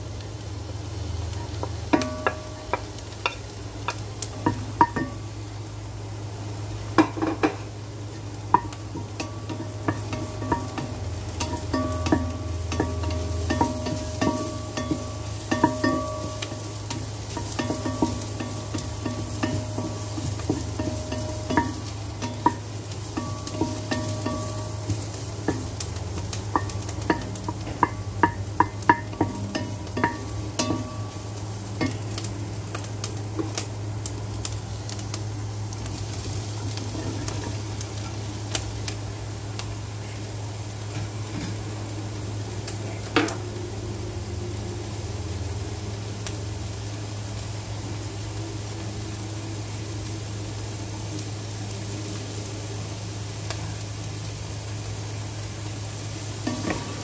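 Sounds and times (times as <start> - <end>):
low steady hum: 0.0 - 57.0
onion and garlic sizzling in oil: 0.0 - 57.0
wooden spoon knocking on pot: 1.6 - 5.2, 8.5 - 32.1.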